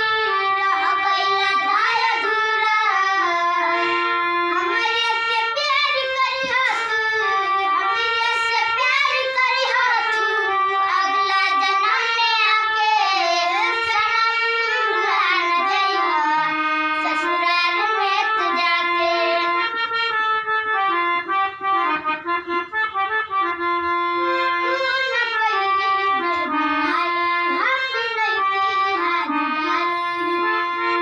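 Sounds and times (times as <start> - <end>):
girls singing folk song: 0.0 - 19.6
harmonium playing: 0.0 - 31.0.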